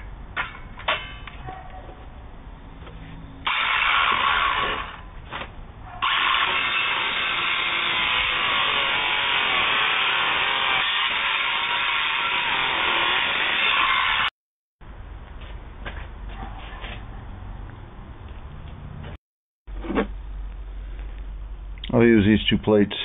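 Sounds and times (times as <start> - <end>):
power saw cutting fiberboard: 3.4 - 5.0, 6.0 - 14.3.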